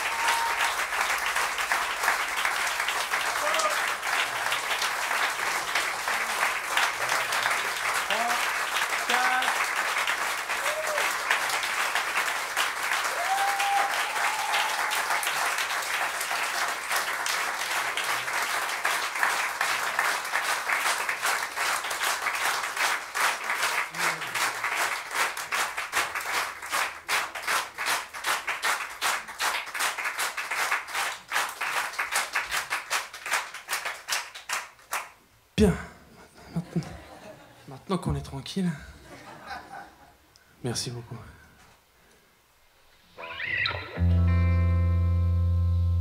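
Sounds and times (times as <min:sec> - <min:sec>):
audience applauding: 0:00.0 - 0:35.2.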